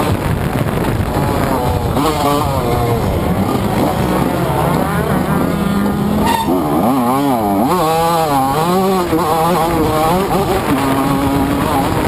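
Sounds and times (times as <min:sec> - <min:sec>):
motocross engine revving: 0:00.0 - 0:12.0.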